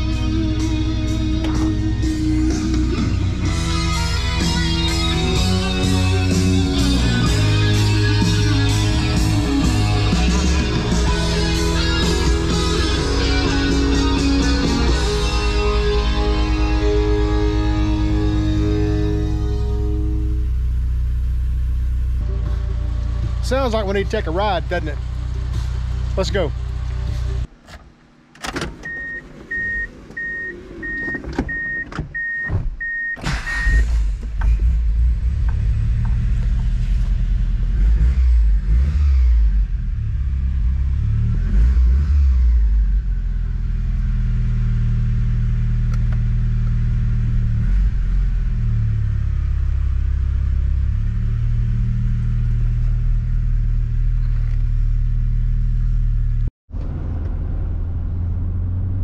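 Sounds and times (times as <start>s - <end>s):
car engine idling: 0.0s - 31.2s, 33.2s - 37.9s
car engine starting and revving: 0.0s - 59.0s
car warning chime beeping: 28.7s - 33.9s
car door thuds and clicks: 31.0s - 33.2s.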